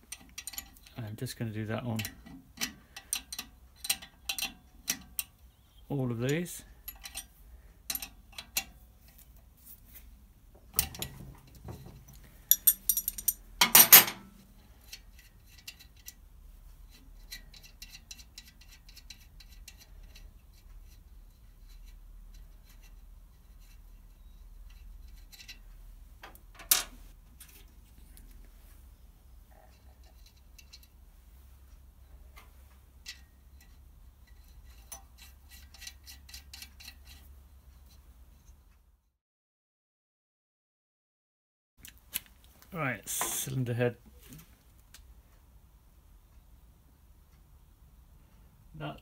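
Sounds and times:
metal tools clinking: 0.1s - 1.0s, 6.3s - 9.2s, 10.8s - 14.3s.

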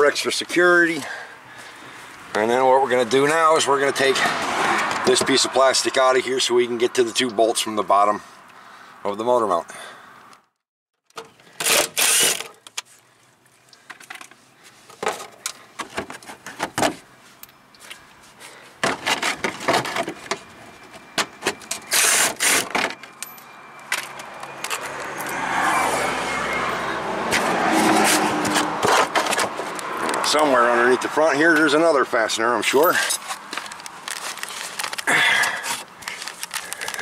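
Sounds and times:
tools and plastic fasteners clattering: 11.0s - 13.0s, 13.7s - 17.9s, 18.8s - 25.3s, 27.3s - 30.4s, 32.8s - 37.0s
plastic scraping and rustling: 13.8s - 17.1s, 18.8s - 23.1s, 27.3s - 30.2s, 33.1s - 37.0s.

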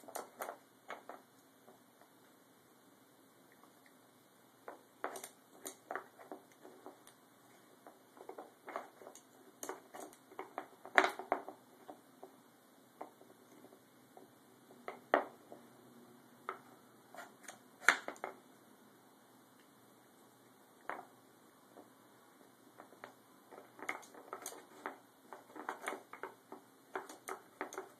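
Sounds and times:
wooden puzzle pieces clacking: 22.8s - 27.9s.

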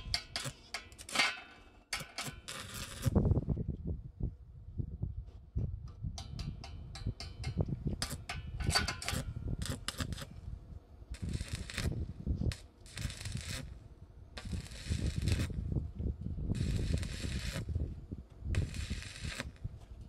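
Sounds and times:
arc welding crackling: 0.0s - 3.2s, 8.0s - 10.4s, 11.1s - 15.8s, 16.5s - 17.8s, 18.5s - 19.8s.

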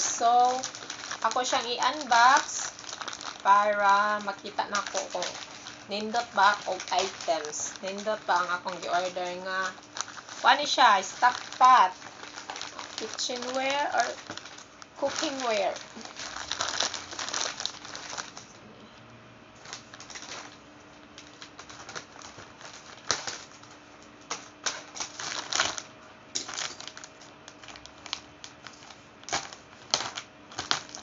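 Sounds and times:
plastic bag crinkling and tearing: 0.0s - 18.6s, 19.6s - 31.0s.

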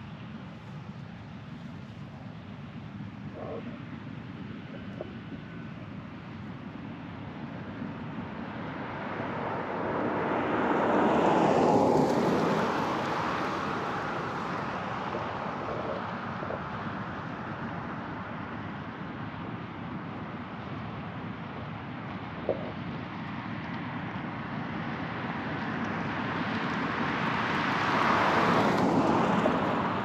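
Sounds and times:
motor vehicle passing: 8.5s - 18.3s.

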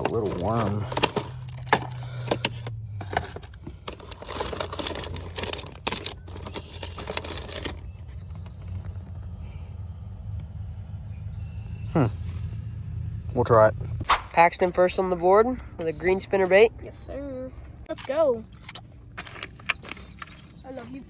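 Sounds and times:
plastic trays rattling: 0.0s - 7.9s
plastic bait packets crinkling: 0.0s - 8.5s, 18.7s - 21.0s.

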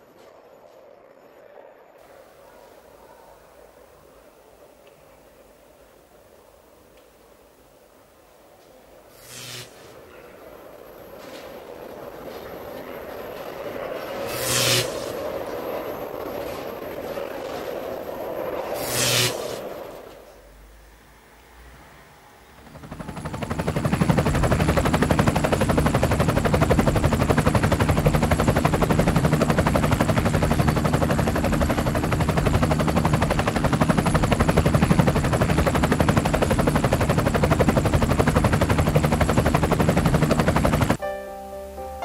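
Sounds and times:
piano notes: 41.0s - 42.0s.

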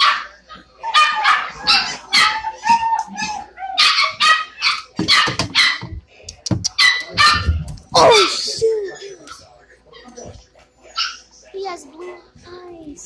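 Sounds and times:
puppies barking: 0.0s - 6.0s, 6.7s - 8.6s, 10.9s - 11.3s.

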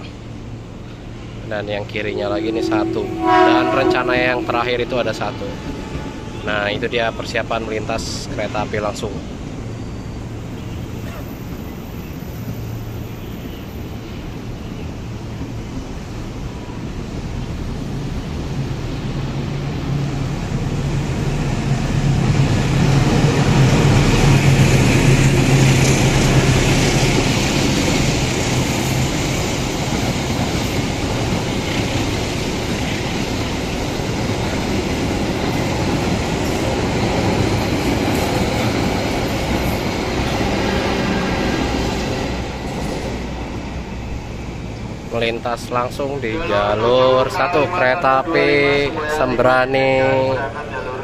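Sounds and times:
diesel locomotive engine drone: 0.0s - 51.0s.

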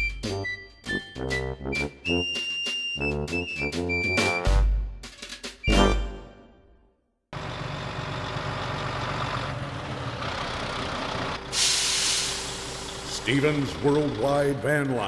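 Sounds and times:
large truck engine running: 7.3s - 15.0s
air brakes hissing: 11.4s - 13.2s.

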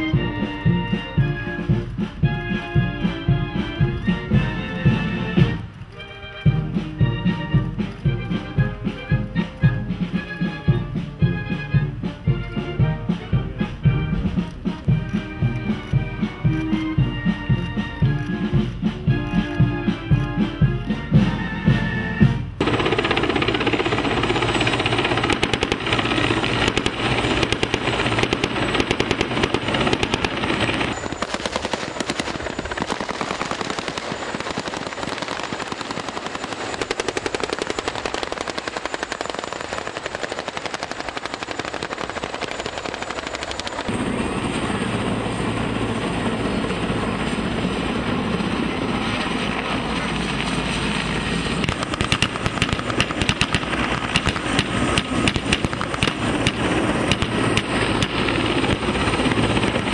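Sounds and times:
heavy engine rumble: 0.0s - 59.9s
helicopter rotor and engine: 0.0s - 59.9s
automatic gunfire: 22.6s - 43.6s, 51.6s - 59.3s.

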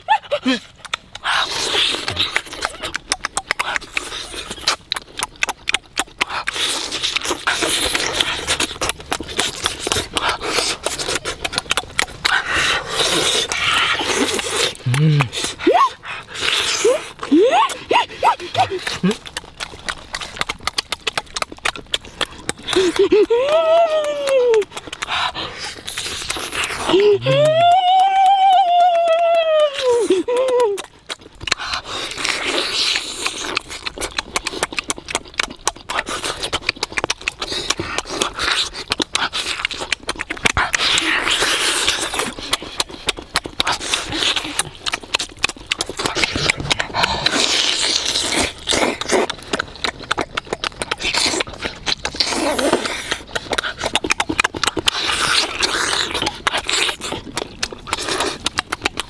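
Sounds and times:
eating with wet smacking: 0.0s - 59.0s
drawn-out vocal sound: 14.7s - 16.0s, 26.6s - 30.8s.

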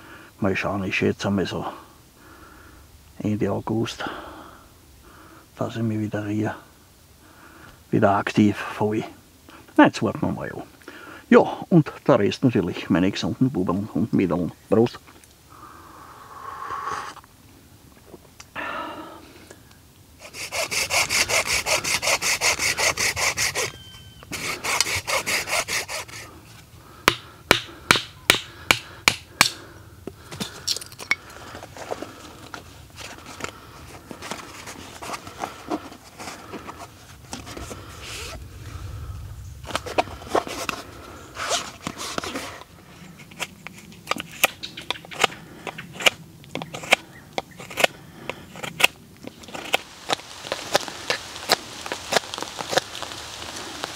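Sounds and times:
hand saw cutting wood: 20.2s - 23.7s, 24.3s - 26.3s
knife whittling wood: 20.2s - 26.3s.

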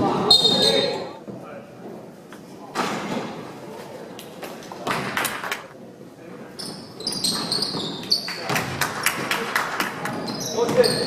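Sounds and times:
sneakers squeaking on court: 0.2s - 1.1s, 6.5s - 8.7s, 10.1s - 11.0s.

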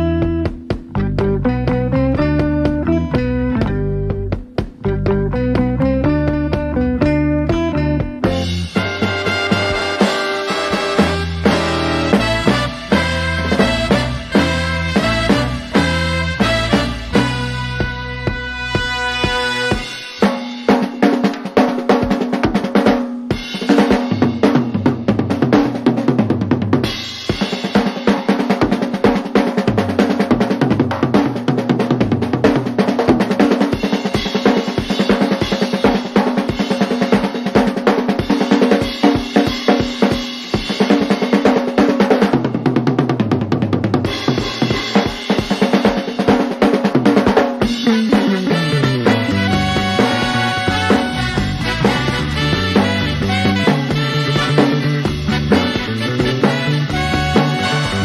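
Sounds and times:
stepping bass line: 0.0s - 20.0s, 47.6s - 58.0s
drum kit playing rapid strokes: 0.0s - 58.0s.

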